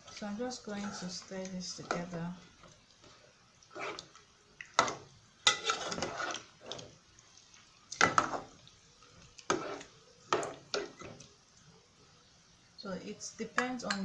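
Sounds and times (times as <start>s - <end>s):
spoon stirring thick stew: 0.0s - 11.7s
spoon knocking pot: 13.6s - 14.0s.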